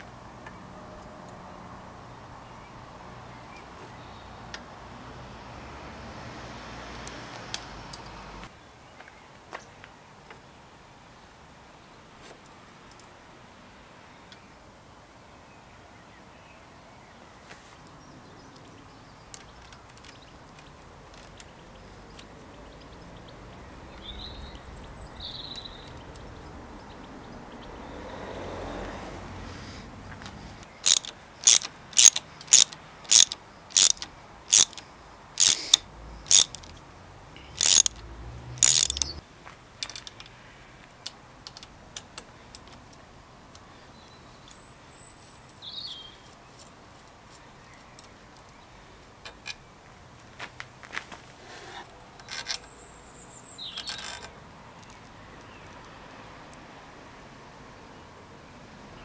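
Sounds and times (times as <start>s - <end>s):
ratchet wrench clicking: 30.8s - 34.8s, 35.4s - 36.7s, 37.6s - 39.2s.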